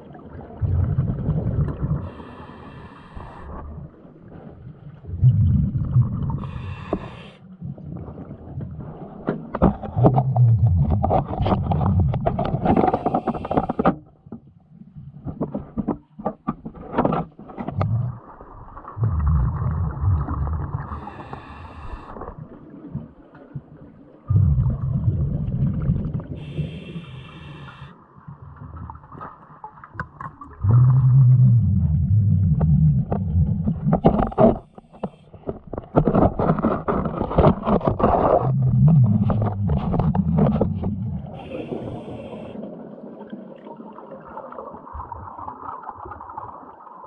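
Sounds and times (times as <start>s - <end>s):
rumbling exhaled bubbles: 0.0s - 14.2s, 16.8s - 47.0s
regulator hissing inhale: 2.0s - 3.6s, 6.4s - 7.4s, 12.8s - 13.9s, 20.9s - 22.3s, 26.4s - 28.0s, 41.4s - 42.6s
clicks and scrapes: 9.2s - 14.4s, 15.2s - 18.1s, 33.1s - 41.6s.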